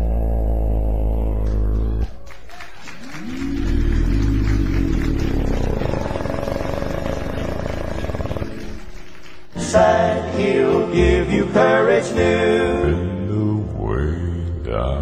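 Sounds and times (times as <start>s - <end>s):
bass singer low vocal fry: 0.0s - 2.3s, 3.0s - 9.0s, 12.5s - 15.0s
male vocal group singing harmony: 9.6s - 15.0s.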